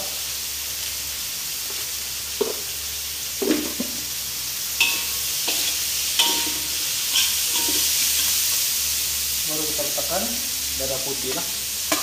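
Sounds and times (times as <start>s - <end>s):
food sizzling in hot oil: 0.0s - 12.0s
spatula scraping in wok: 4.8s - 8.6s.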